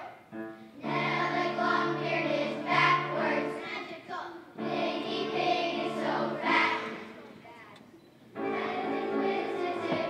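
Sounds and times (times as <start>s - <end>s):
children's choir singing: 0.8s - 7.3s, 8.3s - 10.0s.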